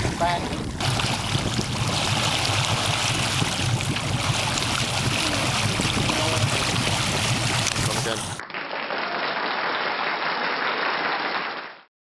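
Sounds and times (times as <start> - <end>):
wind rumble on microphone: 0.0 - 8.3.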